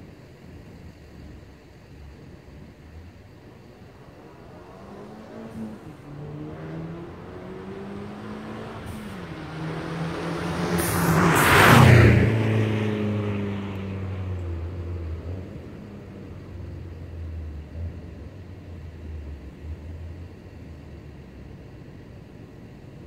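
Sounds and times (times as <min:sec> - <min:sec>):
car accelerating past: 0:03.4 - 0:20.6
brief hiss: 0:08.6 - 0:09.2, 0:10.5 - 0:12.0.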